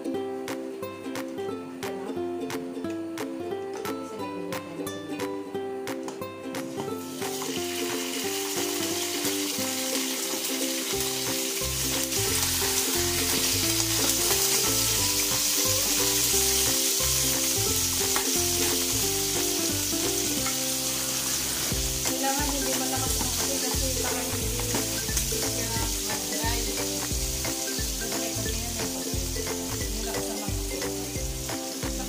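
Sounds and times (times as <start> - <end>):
fish sizzling in a frying pan: 7.0 - 32.0.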